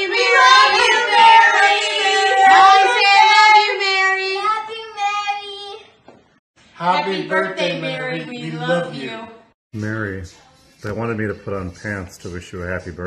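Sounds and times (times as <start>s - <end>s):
children singing together: 0.0s - 5.4s.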